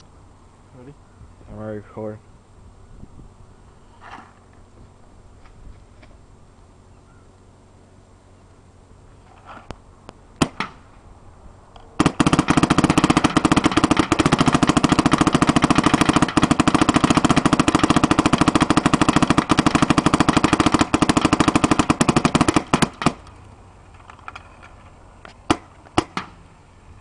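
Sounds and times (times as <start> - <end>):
paintball marker firing: 10.4 - 10.8, 12.0 - 23.4, 25.5 - 26.4.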